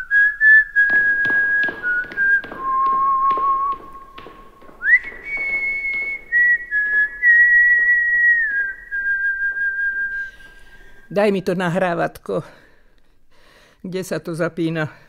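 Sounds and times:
person whistling a slow tune: 0.0 - 4.2, 4.8 - 11.1
faint taps: 0.9 - 8.0.

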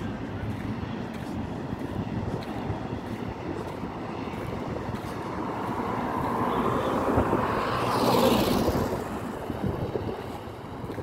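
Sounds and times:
road traffic noise: 0.0 - 11.0
vehicle passing whoosh: 1.8 - 10.6.

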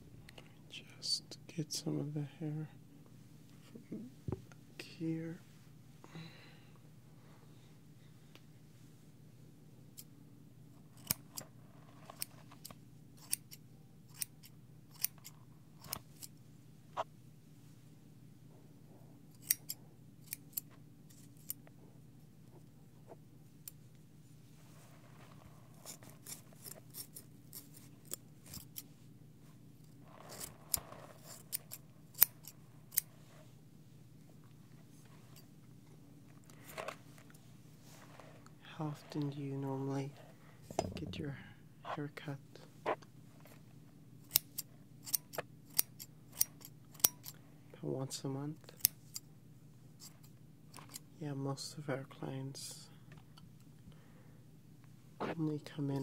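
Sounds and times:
soft rustling: 10.8 - 12.8, 20.6 - 44.1
scissors snipping: 11.0 - 11.4, 12.1 - 16.3, 19.4 - 21.6, 25.9 - 28.9, 30.3 - 33.1, 44.2 - 47.4.

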